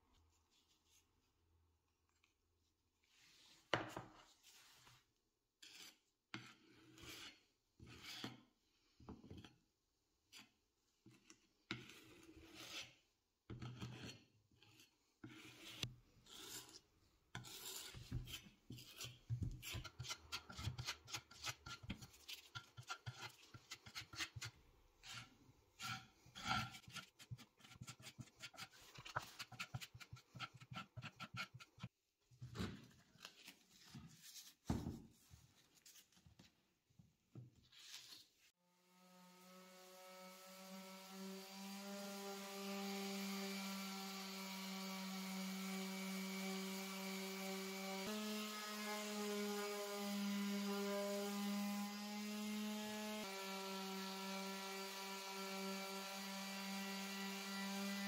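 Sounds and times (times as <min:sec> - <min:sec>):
putty knife scraping: 0:05.6 - 0:08.5, 0:10.3 - 0:32.0.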